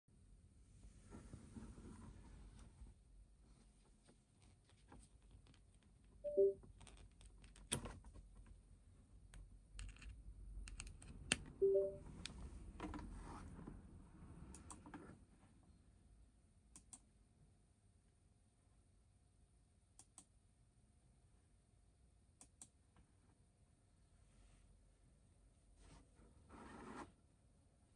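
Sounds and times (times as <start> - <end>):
two-note computer chimes: 6.3 - 6.6, 11.6 - 12.0.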